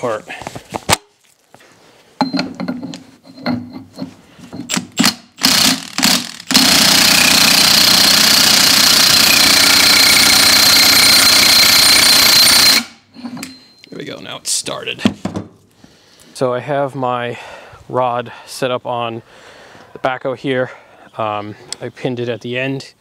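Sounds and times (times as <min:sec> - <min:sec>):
impact wrench hammering: 0:04.6 - 0:13.6.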